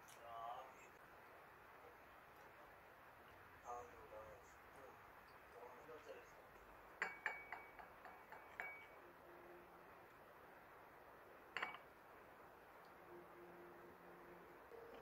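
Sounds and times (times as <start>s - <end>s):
chopsticks clinking on ceramic dishes: 11.6s - 11.9s.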